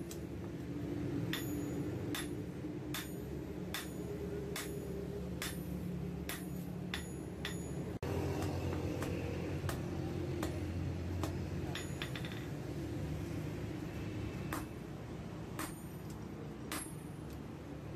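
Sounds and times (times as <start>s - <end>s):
hammer striking metal on anvil: 1.2s - 12.7s, 14.5s - 14.8s, 15.5s - 17.4s.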